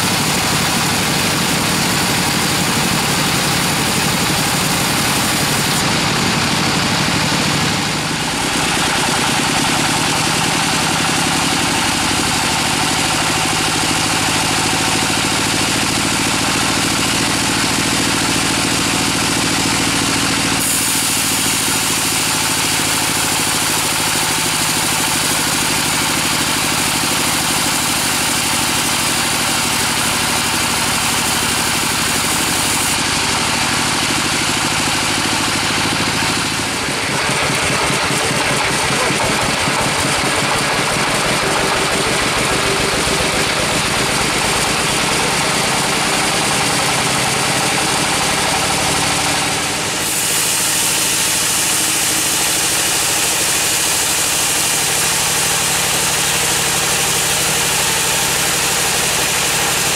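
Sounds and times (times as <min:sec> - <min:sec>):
saw blade hissing: 0:00.0 - 0:06.2, 0:20.5 - 0:33.0, 0:49.4 - 0:59.9
sawmill machine drone: 0:00.0 - 0:59.9.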